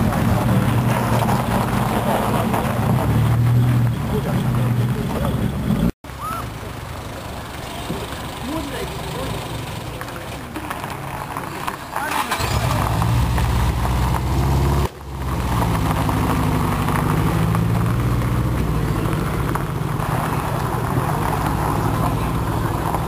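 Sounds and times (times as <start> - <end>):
loud car exhaust revving: 12.4 - 23.0.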